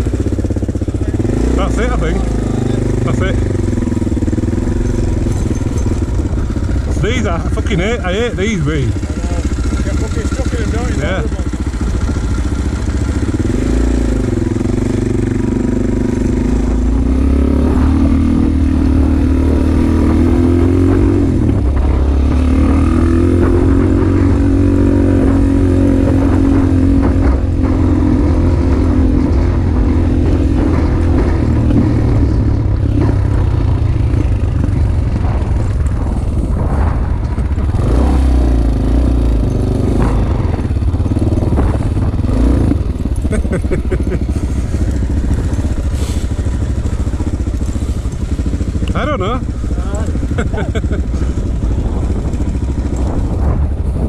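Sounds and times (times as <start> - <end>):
dirt bike engine revving: 0.0 - 54.0
bike knocks and rattles: 4.0 - 7.0.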